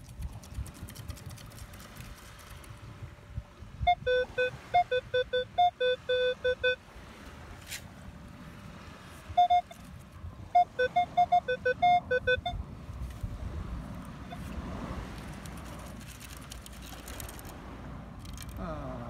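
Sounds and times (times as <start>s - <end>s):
metal detector beeps: 3.9s - 6.8s, 9.3s - 9.9s, 10.5s - 12.6s, 14.3s - 14.6s.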